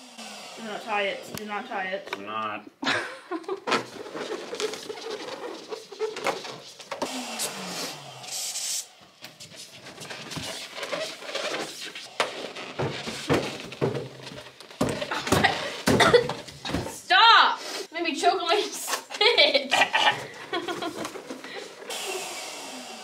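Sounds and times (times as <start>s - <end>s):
balloons squeaking and rubbing: 3.7s - 16.7s
brief hiss: 7.0s - 8.9s.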